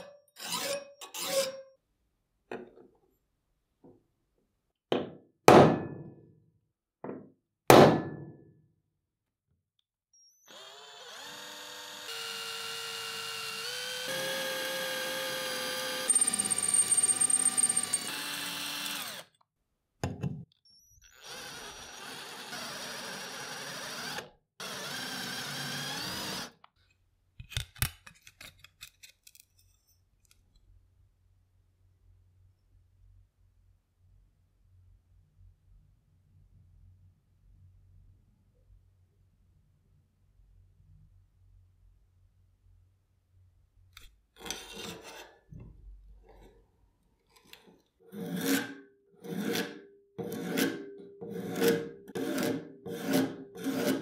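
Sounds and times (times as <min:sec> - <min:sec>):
punch knocking on metal plate: 0:07.7 - 0:08.4
drill boring through metal: 0:10.5 - 0:19.3, 0:21.0 - 0:26.6.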